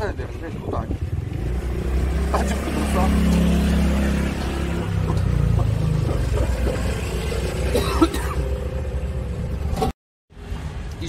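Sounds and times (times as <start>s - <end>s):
wind rumble on microphone: 0.0s - 1.7s
man coughing: 7.7s - 8.5s.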